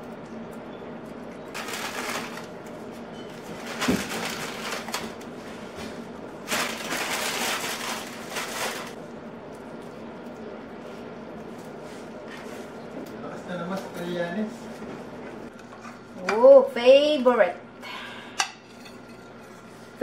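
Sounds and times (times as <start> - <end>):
steady low hum: 0.0 - 20.0
noodles rustling crackle: 1.5 - 5.7, 6.3 - 9.0.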